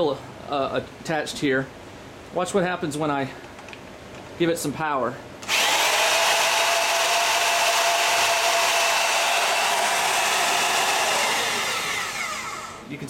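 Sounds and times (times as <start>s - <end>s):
electric drill whining: 5.4s - 12.9s.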